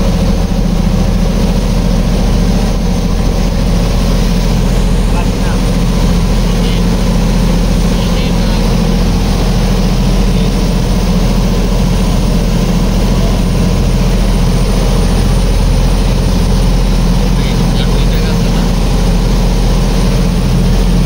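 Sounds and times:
boat diesel engine droning: 0.0s - 21.0s.

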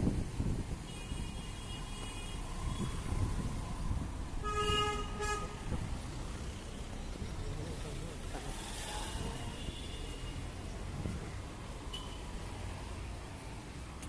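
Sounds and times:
city road traffic: 0.0s - 14.0s
vehicle horns honking: 4.4s - 5.8s.

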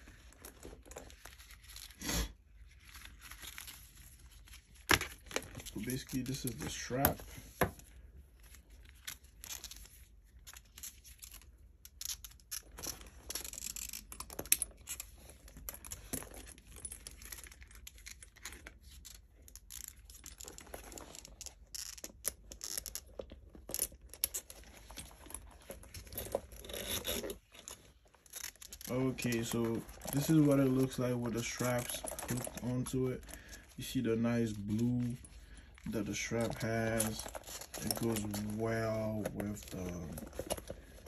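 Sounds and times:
bag rustling and crinkling: 23.0s - 41.0s.

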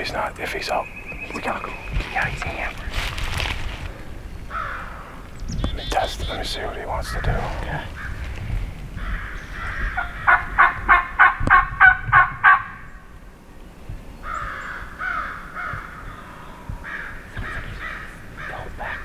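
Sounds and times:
quieter turkey calls: 4.5s - 8.3s, 9.0s - 12.9s
turkey yelping: 9.6s - 12.8s.

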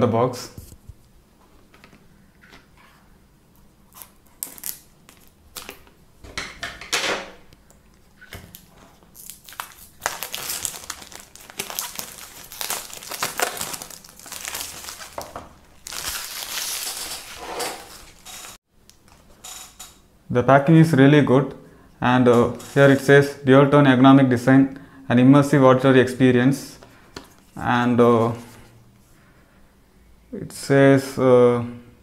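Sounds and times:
plastic wrap crinkling: 3.9s - 5.9s, 8.0s - 19.2s.

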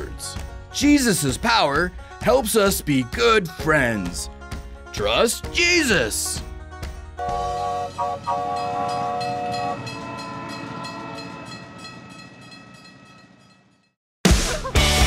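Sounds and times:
steam locomotive whistle: 7.2s - 11.0s
steam locomotive chugging: 7.2s - 12.6s
loud rock music: 14.3s - 15.0s.

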